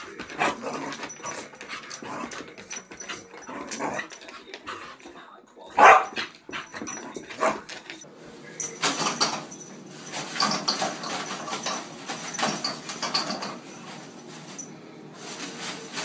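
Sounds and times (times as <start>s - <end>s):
small dog growling: 3.4s - 4.2s
small dog barking: 5.8s - 6.2s.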